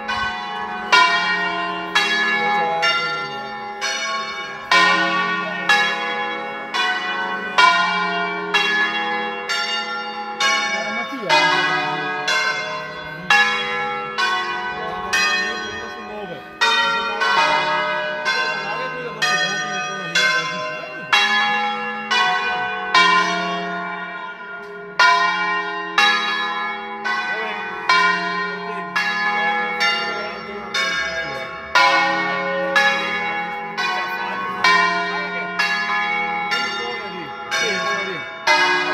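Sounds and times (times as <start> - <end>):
church bells ringing: 0.0 - 38.9.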